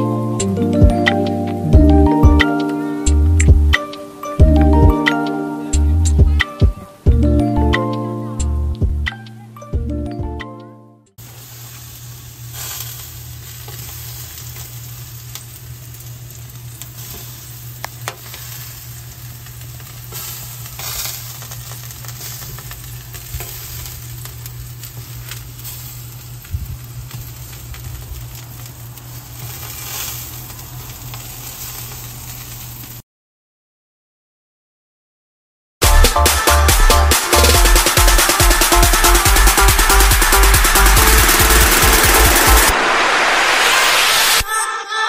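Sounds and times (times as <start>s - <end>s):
steaks sizzling on grill: 11.2s - 33.0s.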